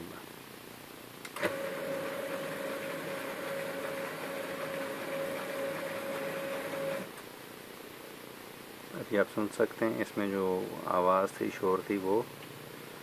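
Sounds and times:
laser printer mechanical hum: 0:01.5 - 0:07.1.

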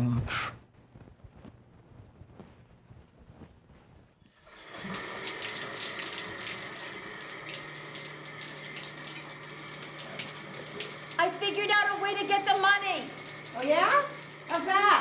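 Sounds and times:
shower spraying onto tiled floor: 0:04.3 - 0:15.0.

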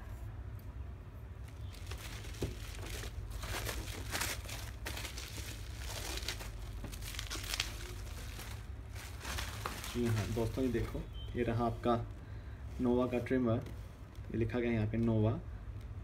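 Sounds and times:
bubble wrap crinkling: 0:01.4 - 0:12.0.

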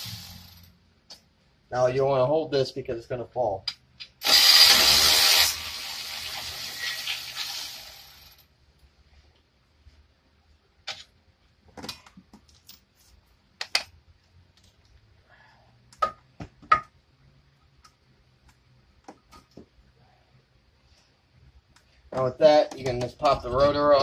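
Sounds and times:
power tool hissing and whirring: 0:00.0 - 0:00.5, 0:04.2 - 0:08.4.

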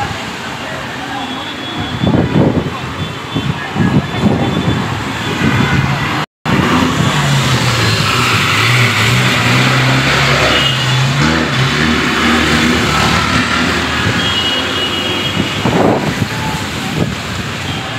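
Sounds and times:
traffic hiss on wet road: 0:00.0 - 0:17.9
large vehicle engine passing: 0:06.5 - 0:14.2.

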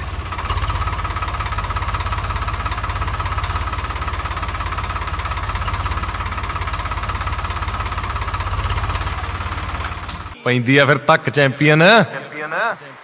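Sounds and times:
toy tractor engine chugging: 0:00.0 - 0:10.4.

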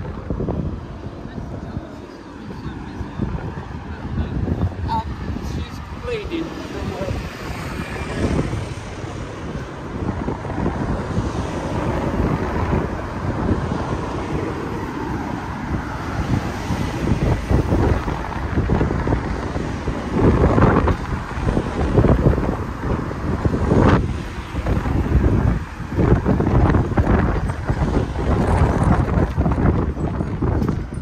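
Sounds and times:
city street traffic: 0:00.0 - 0:31.0
wind buffeting microphone: 0:00.0 - 0:31.0.

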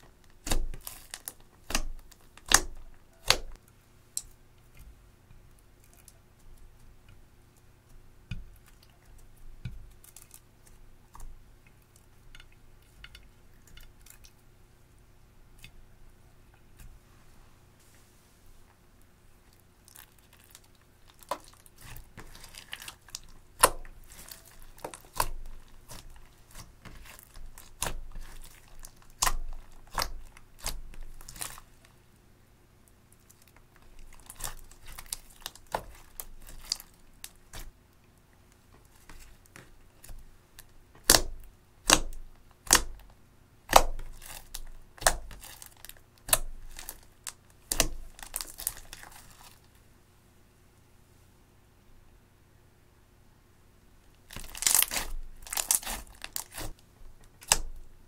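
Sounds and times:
slime popping and crackling: 0:00.4 - 0:03.6, 0:19.8 - 0:31.7, 0:33.2 - 0:37.7, 0:41.0 - 0:43.1, 0:43.7 - 0:49.6, 0:54.3 - 0:56.8, 0:57.4 - 0:57.8.

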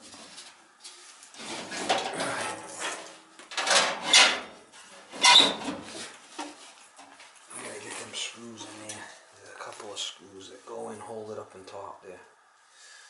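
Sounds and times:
sheet metal scraping and rattling: 0:01.4 - 0:06.1.

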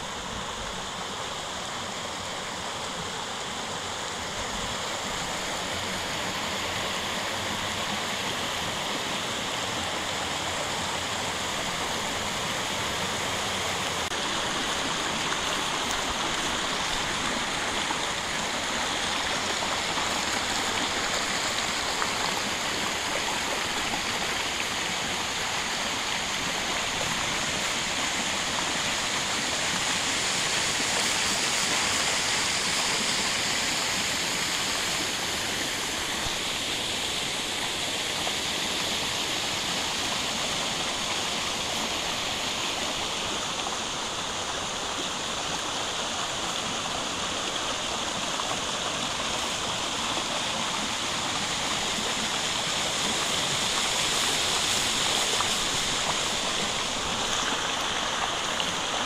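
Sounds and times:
creek water rushing over rocks: 0:00.0 - 0:59.0.

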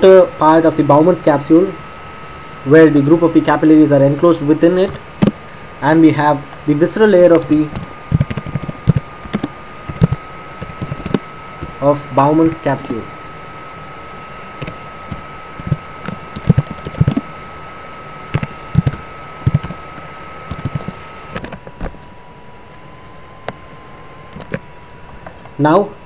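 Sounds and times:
high-pitched whine: 0:00.0 - 0:26.0.

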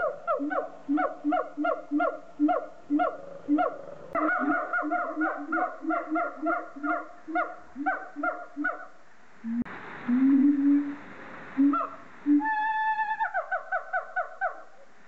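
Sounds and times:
apes barking calls: 0:00.0 - 0:09.0, 0:11.6 - 0:14.8
long held hoot: 0:09.4 - 0:11.0, 0:11.6 - 0:14.6
hiss: 0:09.4 - 0:12.5.

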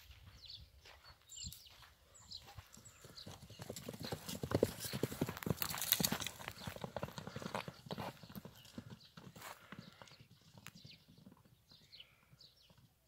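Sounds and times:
horse hoofbeats on grass: 0:01.8 - 0:11.8.

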